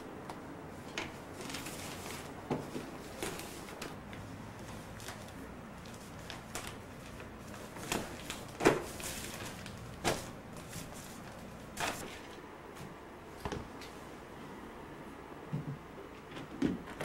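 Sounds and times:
newspaper handling noise: 0.0 - 12.5.

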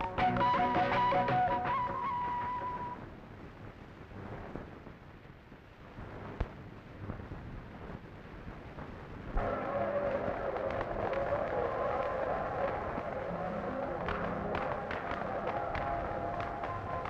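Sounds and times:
music cue: 0.0 - 3.0
loud full noise: 0.0 - 3.5, 9.1 - 17.0
low noisy rumble: 0.0 - 17.0.

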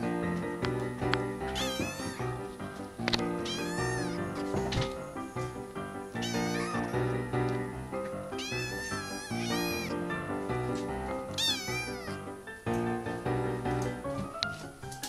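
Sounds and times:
background music with held notes: 0.0 - 15.0
kitten meowing: 1.5 - 2.4, 3.4 - 7.1, 8.3 - 10.0, 11.3 - 12.2.

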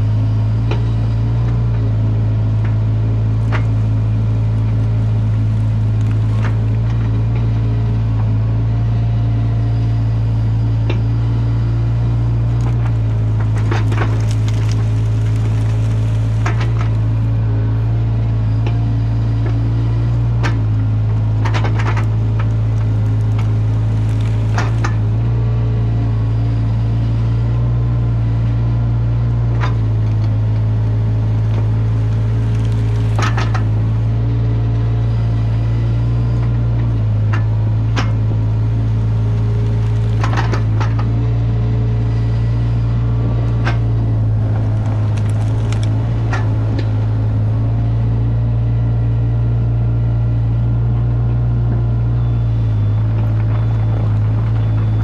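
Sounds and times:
diesel engine running: 0.0 - 55.0
rake crushing brush and sticks: 3.3 - 7.5, 12.3 - 17.4, 21.3 - 25.3, 31.0 - 34.1, 37.9 - 41.3, 43.5 - 47.6.

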